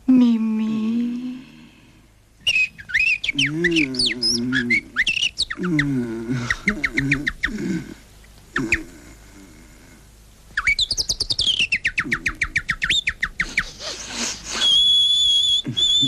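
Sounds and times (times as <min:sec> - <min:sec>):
bird-like high chirps and whistle: 0:02.4 - 0:05.8, 0:10.6 - 0:13.8, 0:14.4 - 0:16.0.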